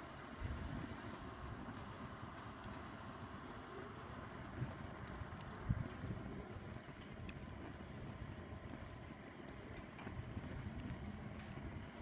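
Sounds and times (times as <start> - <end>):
fire crackling and popping: 0.0 - 12.0
low rumble of fire: 0.0 - 12.0.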